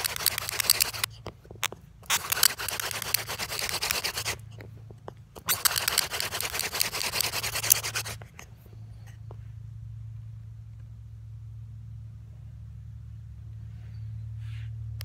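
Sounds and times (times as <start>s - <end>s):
hand drill grinding friction: 0.0s - 1.2s, 2.0s - 4.6s, 5.4s - 8.2s.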